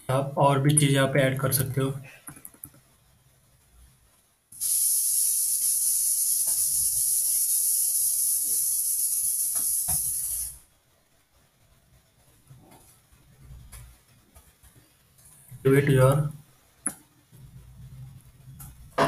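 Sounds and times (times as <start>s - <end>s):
high-pitched hiss: 4.6s - 10.7s.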